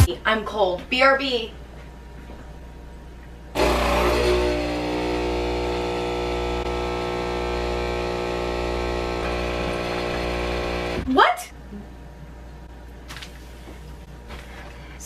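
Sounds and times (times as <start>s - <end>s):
espresso machine pump humming: 3.6s - 11.0s
coffee streaming onto drip tray: 8.0s - 11.0s.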